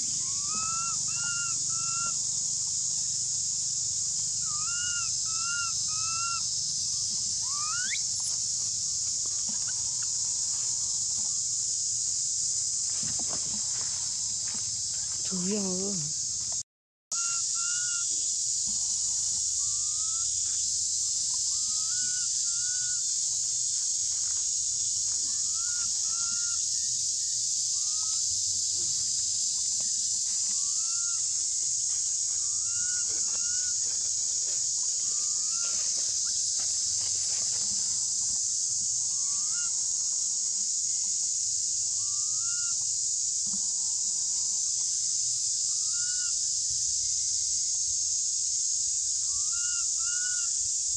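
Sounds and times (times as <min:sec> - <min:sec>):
baby monkey coo calls: 0:00.0 - 0:02.3, 0:04.4 - 0:08.4, 0:17.2 - 0:18.1, 0:19.6 - 0:20.3, 0:21.3 - 0:23.1, 0:25.3 - 0:26.6, 0:30.5 - 0:31.3, 0:32.4 - 0:33.8, 0:39.1 - 0:39.8
high-pitched insect drone: 0:00.0 - 0:50.9.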